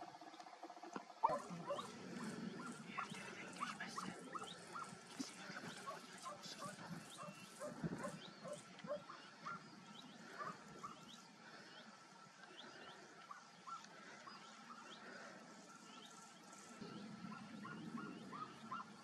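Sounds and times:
distant animal yelps: 17.3 - 19.0.

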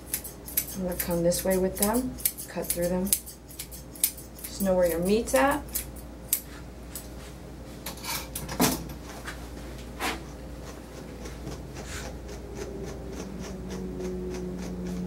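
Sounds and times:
steady low hum: 0.0 - 15.0
grooming scissors clicking: 0.1 - 6.4, 10.6 - 15.0.

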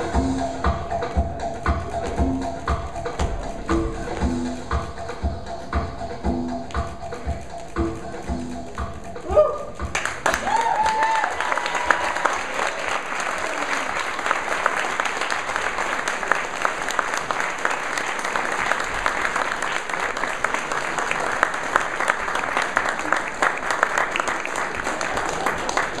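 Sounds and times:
audience applauding: 9.4 - 26.0.

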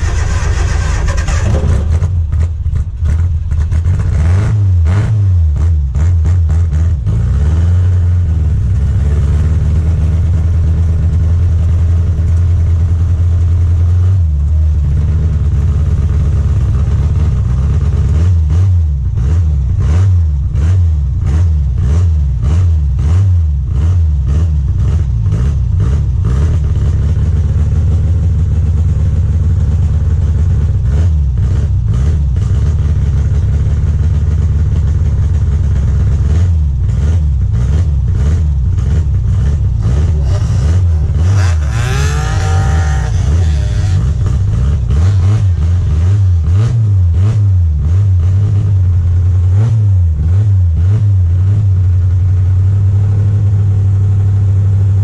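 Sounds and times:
car engine revving hard: 0.0 - 10.4, 36.1 - 51.7.

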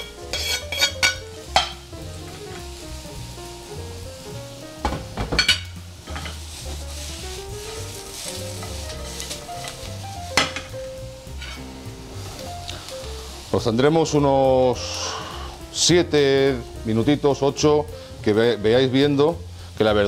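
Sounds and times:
metal clatters of pan and spoon: 0.0 - 2.4, 5.2 - 6.4, 10.4 - 10.7, 11.4 - 11.6
vegetables sizzling in frying pan: 0.0 - 20.0.

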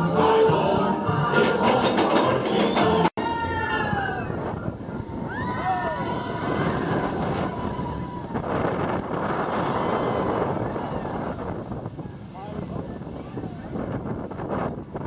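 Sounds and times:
roller coaster train on track: 1.3 - 14.7
riders whooping and screaming: 2.4 - 15.0
wind rushing over microphone: 3.2 - 15.0.

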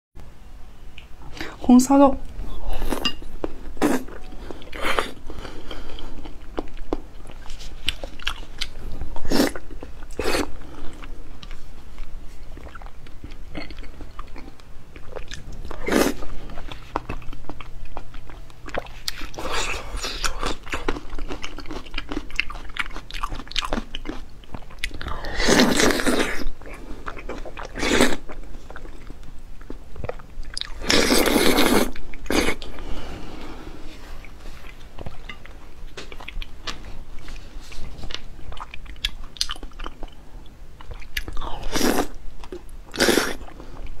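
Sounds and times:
person chewing wetly: 2.7 - 32.8, 34.2 - 44.0.

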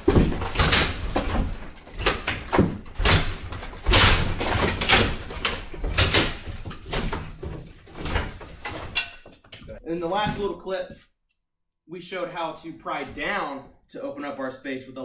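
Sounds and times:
wooden lath strips snapping: 0.0 - 7.2
plaster breaking and falling: 0.0 - 10.4.

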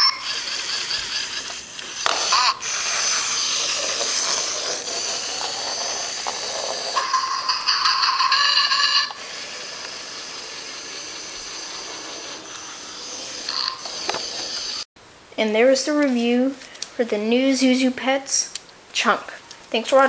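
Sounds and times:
toy motor whirring: 0.0 - 14.9.

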